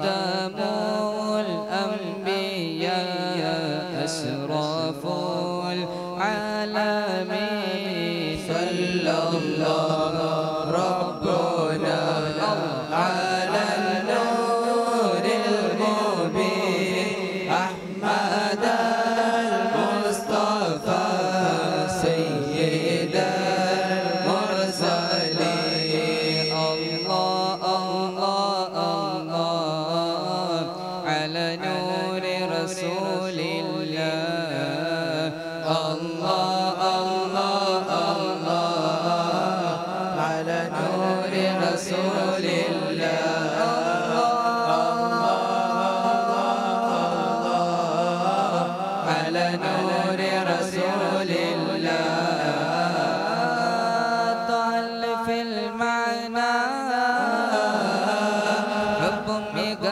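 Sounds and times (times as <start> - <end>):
group of young men singing: 0.0 - 59.9.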